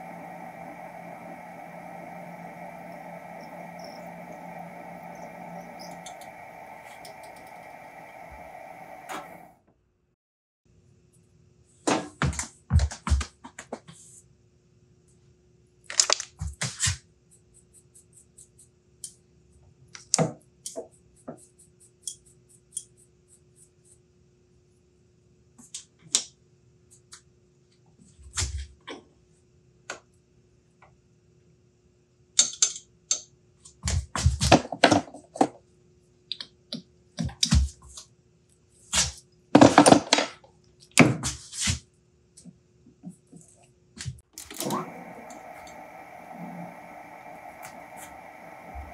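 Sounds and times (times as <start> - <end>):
faint steady hum: 0.0 - 9.6, 44.4 - 48.9.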